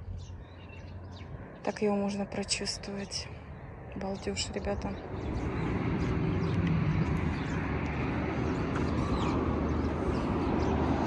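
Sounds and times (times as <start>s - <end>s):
passing cars rumbling: 2.8s - 11.0s.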